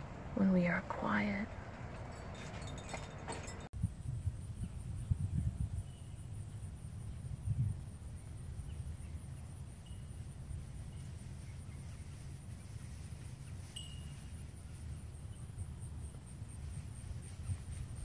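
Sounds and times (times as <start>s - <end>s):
pulsing insect trill: 7.8s - 11.1s.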